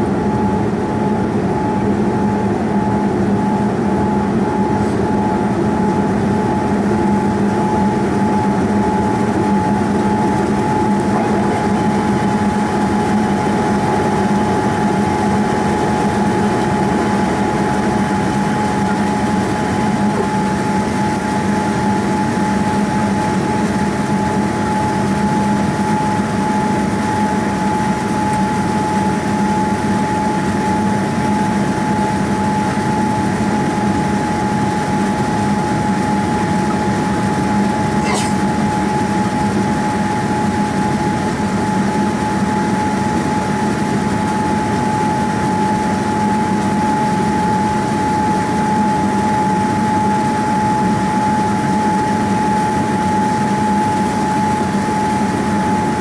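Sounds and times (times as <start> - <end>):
airplane cabin engine drone: 0.0 - 56.0
steady high tone: 37.9 - 38.6.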